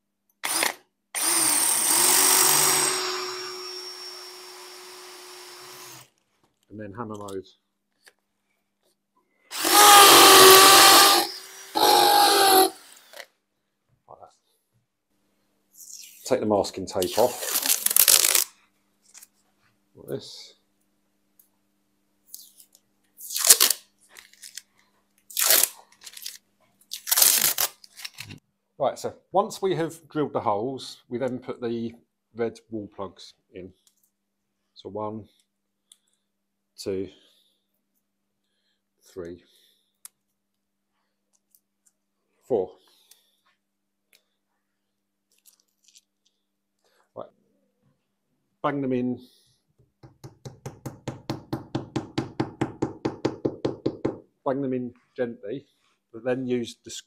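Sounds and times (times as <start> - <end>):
drill bit grinding tile: 0.4 - 6.1, 9.5 - 13.2
drill motor whine: 0.4 - 6.1, 9.5 - 13.1
tape ripping off tiles: 17.0 - 19.3, 23.2 - 24.7, 25.3 - 28.4.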